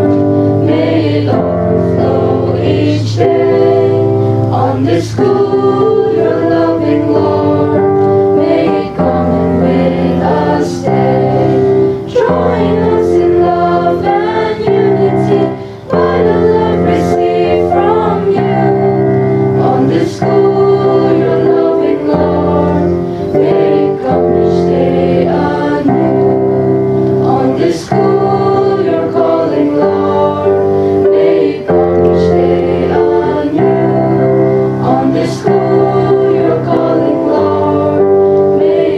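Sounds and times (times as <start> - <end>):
children's choir singing a hymn: 0.0 - 38.9.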